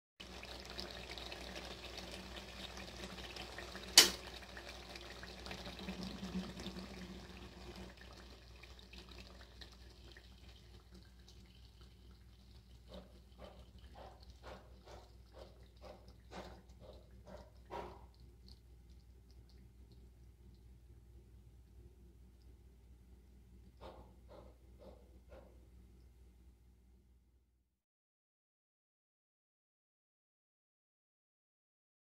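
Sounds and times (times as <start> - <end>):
curry sizzling in oil: 0.2 - 12.8
thick gravy bubbling and plopping: 0.2 - 20.8
low steady hum: 3.1 - 27.5.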